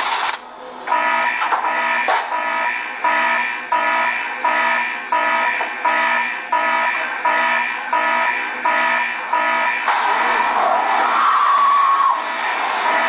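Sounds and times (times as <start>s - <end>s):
electronic alarm beeping: 0.9s - 13.0s.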